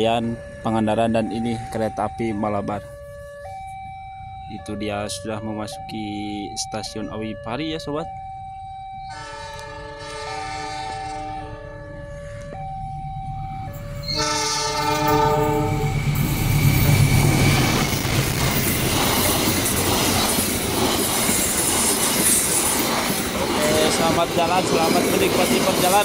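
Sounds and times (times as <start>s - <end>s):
locomotive engine rumble: 8.4s - 26.0s
locomotive horn blasts: 9.1s - 11.7s, 14.0s - 16.0s
train wheels on rails: 14.8s - 26.0s.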